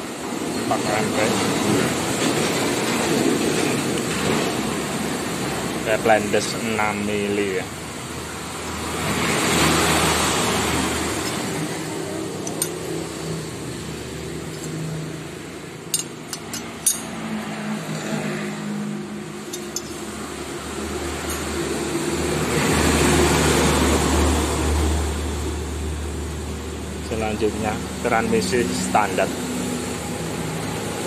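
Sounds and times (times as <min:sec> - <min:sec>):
road traffic: 0:00.0 - 0:31.0
motor vehicle passing by: 0:08.0 - 0:26.3
light metal clinks: 0:15.9 - 0:17.2, 0:19.5 - 0:20.0.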